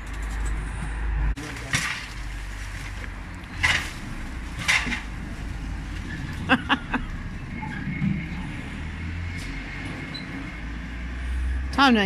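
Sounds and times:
low steady rumble: 0.0 - 9.2
dry stems rustling and crunching: 1.4 - 6.1.

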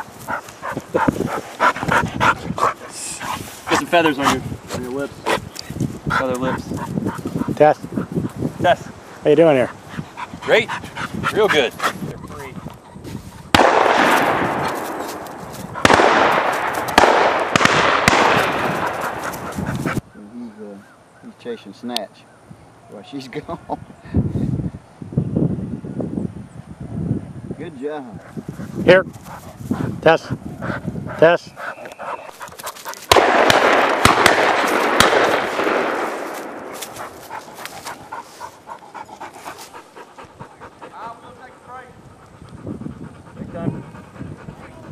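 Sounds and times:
distant gunshots: 13.5 - 15.0, 15.8 - 19.2, 33.1 - 36.8
shotgun blasts with echo: 13.5 - 15.2, 15.8 - 19.2, 33.1 - 36.9.

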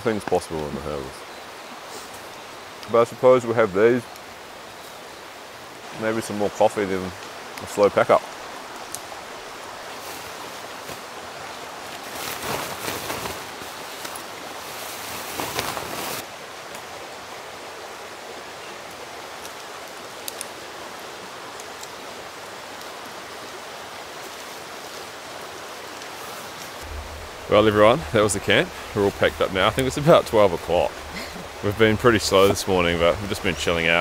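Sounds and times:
outdoor rushing hiss: 0.1 - 16.7, 19.3 - 34.0
faint clicks: 8.8 - 9.1
tent fabric rustling: 9.8 - 16.3, 26.1 - 34.0.

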